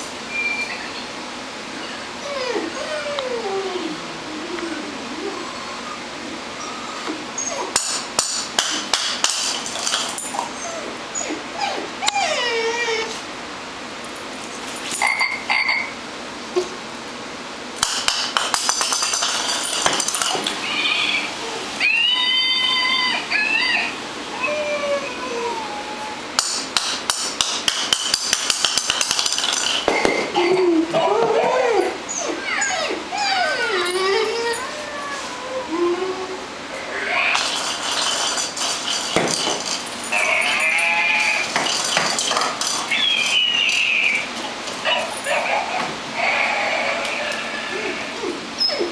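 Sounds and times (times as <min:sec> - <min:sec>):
toy speaker sheep bleat: 0:40.1 - 0:41.5.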